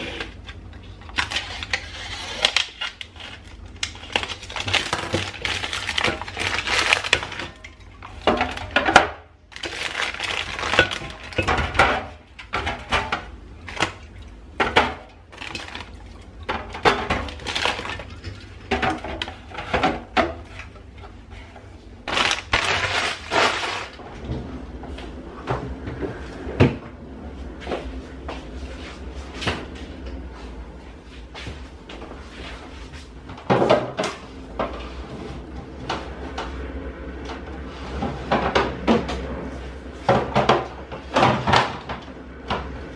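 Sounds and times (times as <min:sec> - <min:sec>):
packaging crinkling: 0:00.0 - 0:08.8, 0:09.5 - 0:11.5, 0:15.3 - 0:16.2, 0:17.2 - 0:18.2, 0:22.0 - 0:24.0
groceries knocking and clattering: 0:00.0 - 0:24.6, 0:33.1 - 0:36.6, 0:37.3 - 0:42.9.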